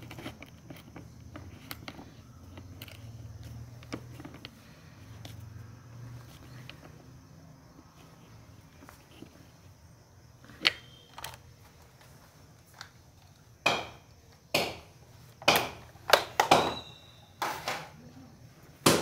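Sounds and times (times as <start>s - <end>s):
sharp knocks: 13.6s - 16.9s.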